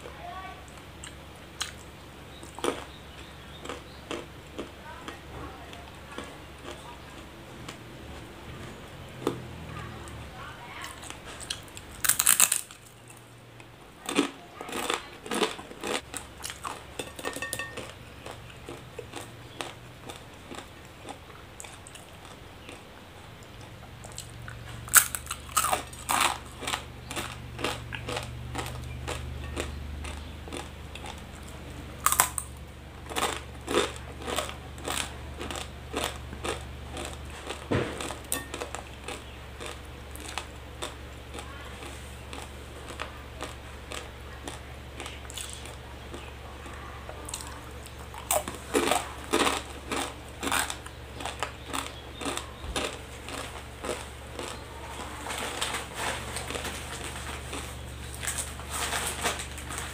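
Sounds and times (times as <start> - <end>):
crunching dry noodles: 0.3 - 59.9
chewing: 0.7 - 59.9.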